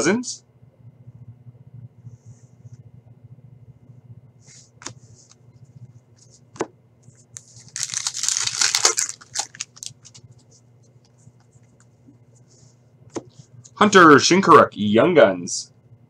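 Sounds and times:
foil wrapper tearing and crinkling: 7.4s - 10.2s.

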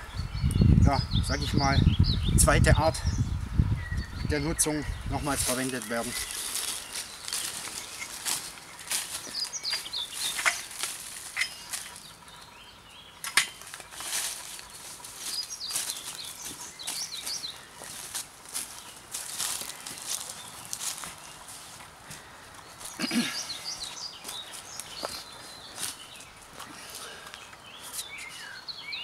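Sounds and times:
footsteps in dry leaves: 5.2s - 12.3s, 13.5s - 28.3s.

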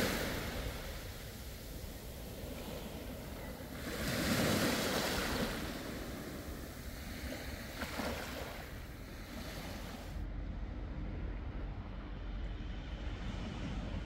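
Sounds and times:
waves breaking on shore: 0.0s - 10.2s.

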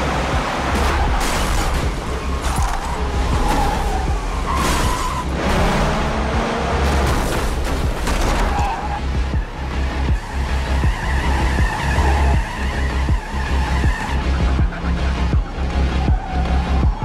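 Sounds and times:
vehicle engines: 0.0s - 17.0s
heavy pulsing bass score: 5.2s - 8.2s, 8.9s - 17.0s.

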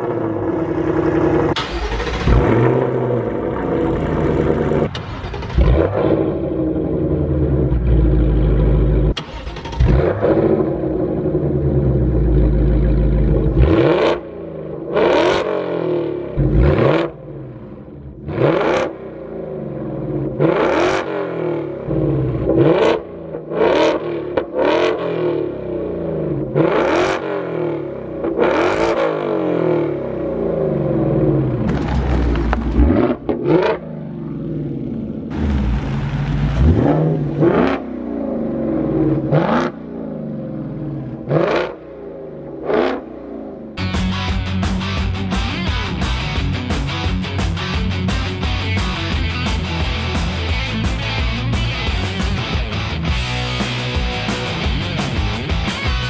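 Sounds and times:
car engine idling: 0.0s - 14.8s, 30.1s - 56.0s
car engine revving: 0.0s - 56.0s.

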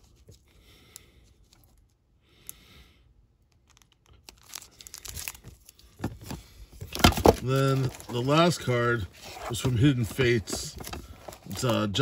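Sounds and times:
plastic sleeves crinkling: 3.5s - 12.0s.

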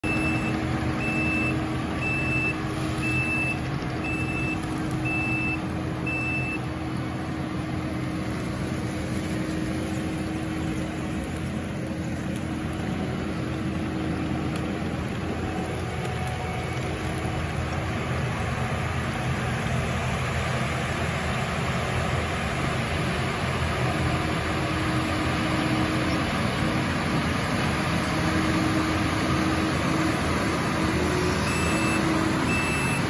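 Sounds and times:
reversing alarm beeps: 0.0s - 6.6s, 31.4s - 33.0s
track loader engine running: 0.0s - 33.0s.

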